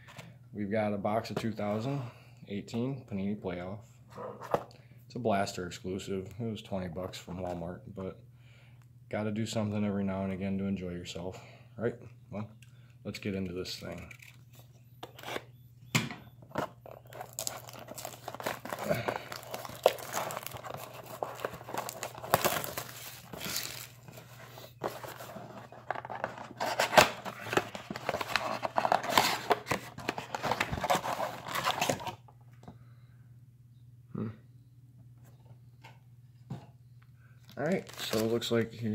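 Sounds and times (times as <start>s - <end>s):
cardboard box tearing: 17.0s - 24.0s.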